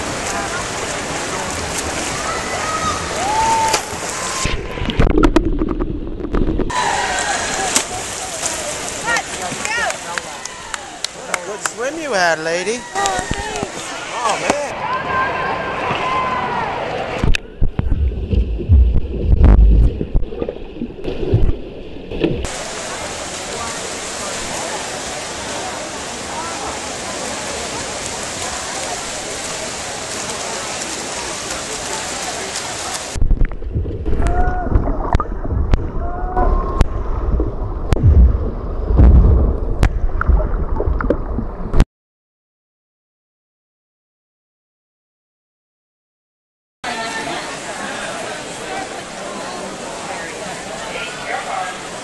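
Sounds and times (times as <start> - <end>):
sharp underwater clicks and knocks: 3.7 - 6.7, 17.2 - 22.5, 36.8 - 41.8
bubbling: 3.7 - 8.1, 17.2 - 22.6, 33.1 - 41.8
underwater swimmer strokes: 17.3 - 22.6.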